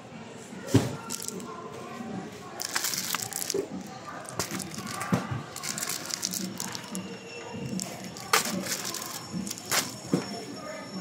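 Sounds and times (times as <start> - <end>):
faint voices: 0.0 - 11.0
plastic wrap crinkling: 1.0 - 1.5, 2.6 - 7.0, 7.6 - 10.0.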